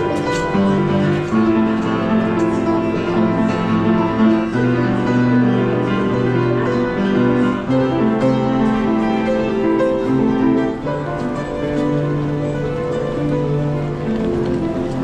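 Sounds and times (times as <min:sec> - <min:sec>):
upright piano chords: 0:00.0 - 0:15.0.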